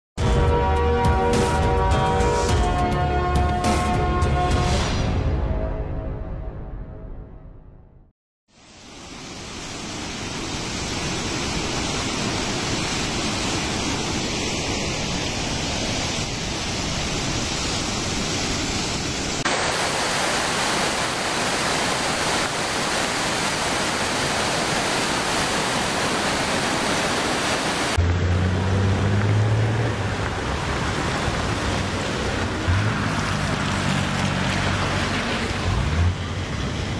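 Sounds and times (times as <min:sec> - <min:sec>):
floodwater rushing: 0:08.6 - 0:36.9.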